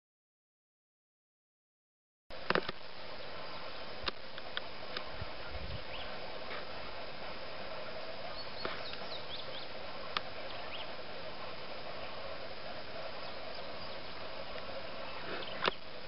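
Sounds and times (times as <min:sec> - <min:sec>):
steady background hiss: 0:02.3 - 0:16.0
faint high bird chirps: 0:05.4 - 0:06.3, 0:08.2 - 0:09.8, 0:10.4 - 0:11.0, 0:13.0 - 0:15.9
sharp clicks: 0:15.6 - 0:15.8.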